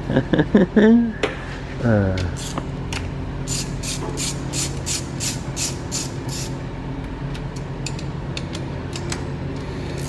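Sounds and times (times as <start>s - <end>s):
steady low hum: 0.0s - 10.0s
ratchet wrench clicking: 2.4s - 2.6s, 3.5s - 6.6s.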